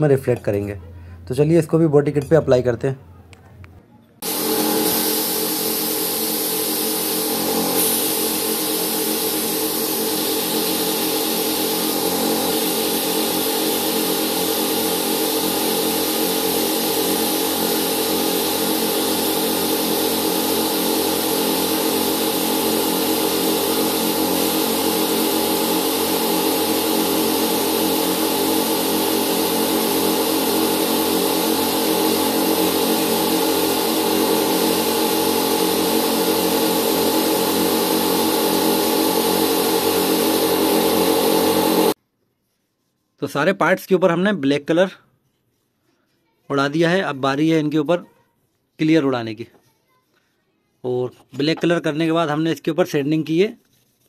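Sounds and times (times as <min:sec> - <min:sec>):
air compressor humming: 0:04.2 - 0:42.0
spray gun hissing: 0:04.2 - 0:42.0.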